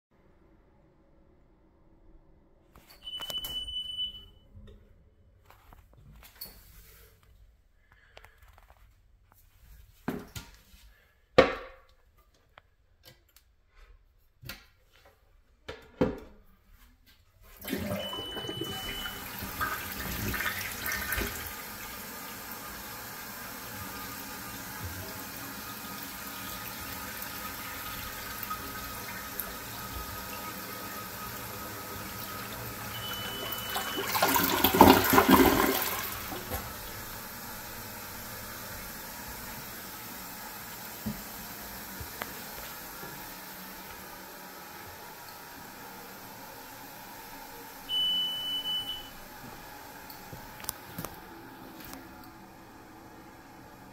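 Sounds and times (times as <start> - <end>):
smoke detector beep: 2.9 - 4.4, 17.9 - 19.3, 32.9 - 34.2, 47.9 - 49.2
toilet flushing: 17.5 - 53.9.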